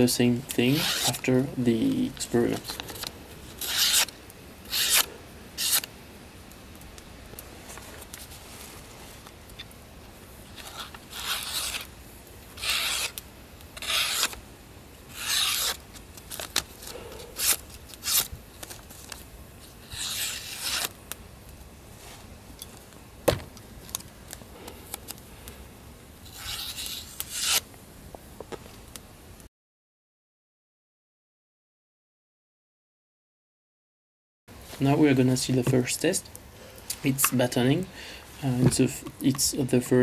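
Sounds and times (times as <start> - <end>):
knife slicing paper: 0.7 - 1.3, 2.4 - 4.1, 4.7 - 5.9, 10.5 - 11.9, 12.6 - 13.2, 13.8 - 14.4, 15.1 - 21.0, 26.2 - 27.6.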